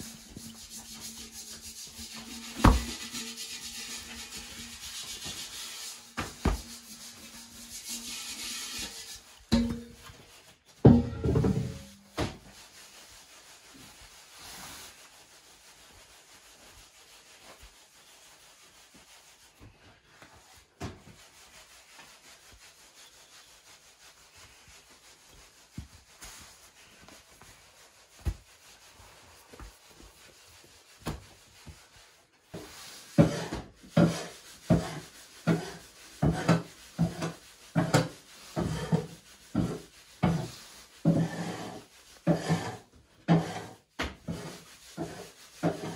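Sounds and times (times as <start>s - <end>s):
metal tool scraping dough: 0.0s - 10.2s, 33.1s - 45.9s
rubbing strokes: 0.0s - 45.9s.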